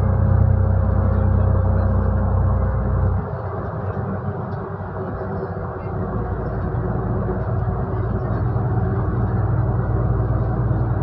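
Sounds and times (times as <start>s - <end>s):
bus engine drone: 0.0s - 11.0s
road noise: 0.0s - 11.0s.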